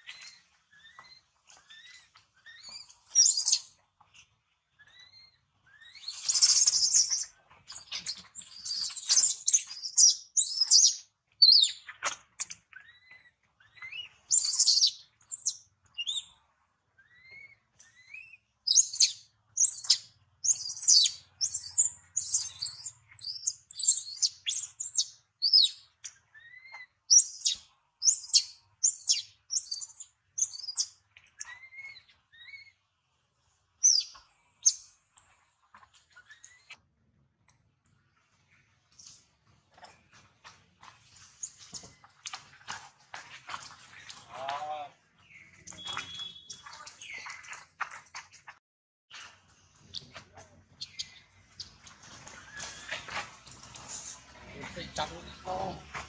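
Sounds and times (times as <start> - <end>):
baby monkey squealing: 17.0 - 25.7, 26.4 - 32.7
rustling scuffle: 51.4 - 56.0.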